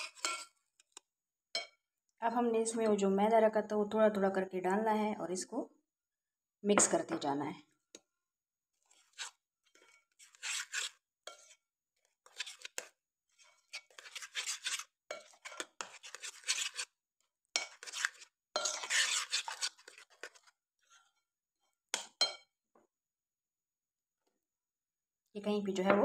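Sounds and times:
spoon scraping metal bowl: 0:00.0 - 0:00.6, 0:08.9 - 0:17.0, 0:17.6 - 0:21.2.

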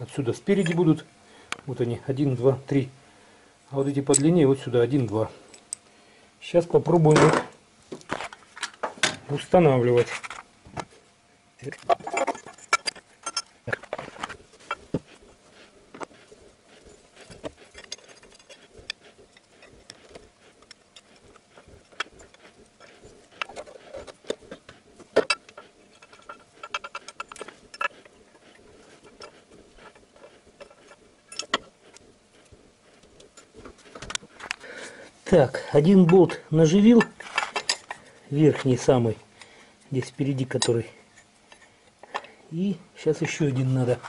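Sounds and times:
small metal clicks and scrapes: 0:11.6 - 0:34.6, 0:35.8 - 0:42.4.

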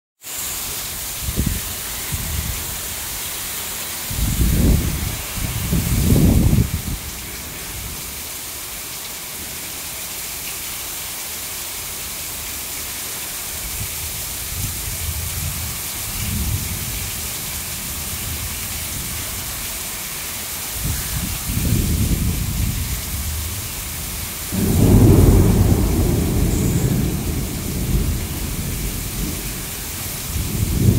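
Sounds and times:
heavy rain: 0:00.2 - 0:30.9
thunder rumbling: 0:04.1 - 0:08.0, 0:21.5 - 0:30.9.

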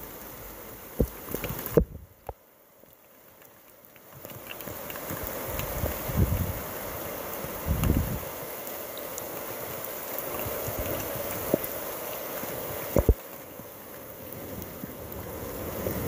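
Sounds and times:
rain: 0:00.0 - 0:16.0
wind: 0:00.0 - 0:16.0
wind gusts buffeting microphone: 0:05.1 - 0:08.4.

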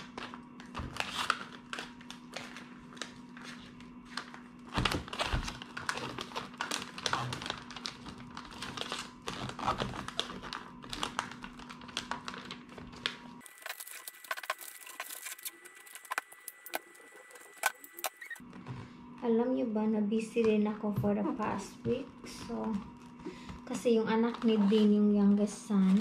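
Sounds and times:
wrapping paper crinkling: 0:00.0 - 0:18.6
faint steady hum: 0:00.0 - 0:26.0.

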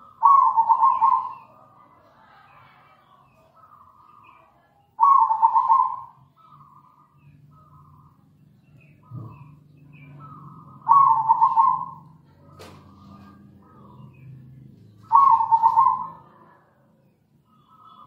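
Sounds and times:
dove cooing: 0:00.0 - 0:01.6, 0:05.0 - 0:08.0, 0:09.0 - 0:14.2, 0:14.9 - 0:16.4.

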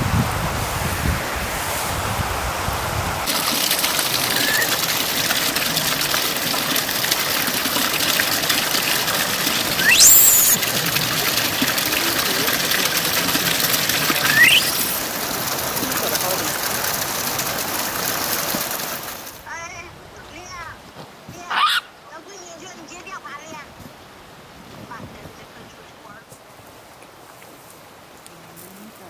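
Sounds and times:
flowing water rushing: 0:02.6 - 0:19.5
short rising squeaky calls: 0:04.0 - 0:04.9, 0:09.5 - 0:11.0, 0:13.2 - 0:15.1, 0:21.5 - 0:21.9.

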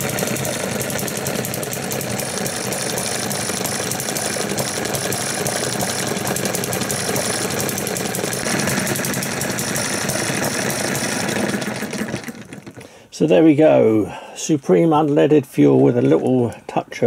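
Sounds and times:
model engine ticking: 0:00.0 - 0:13.0.

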